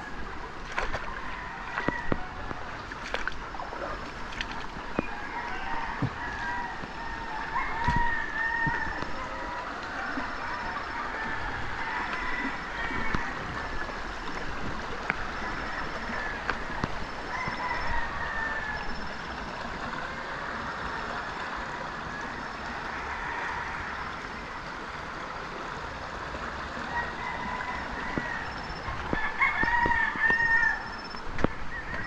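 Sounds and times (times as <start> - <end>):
water in a rocky stream: 0.0 - 32.0
rooster crowing: 5.2 - 9.4, 17.3 - 18.9, 26.9 - 31.0.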